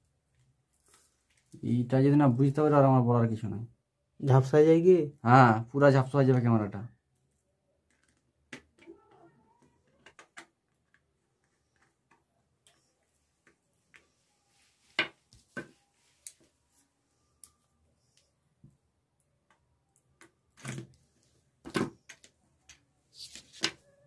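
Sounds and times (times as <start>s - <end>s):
clicks and taps of handling plastic: 7.8s - 12.8s.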